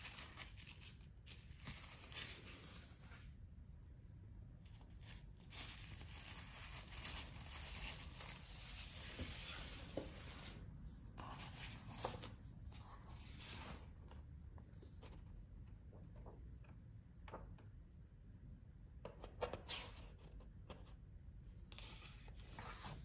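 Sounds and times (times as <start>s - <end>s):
plastic wrapping crinkling: 0.0s - 3.2s.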